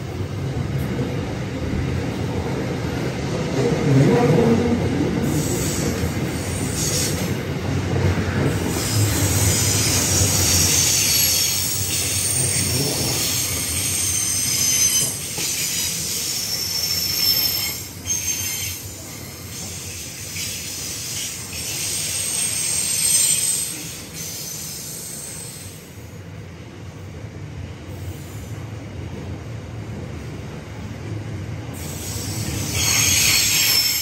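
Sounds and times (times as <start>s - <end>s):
train rumble and rattle: 0.0s - 34.0s
train wheels squealing: 5.2s - 7.4s, 8.5s - 26.0s, 31.8s - 34.0s.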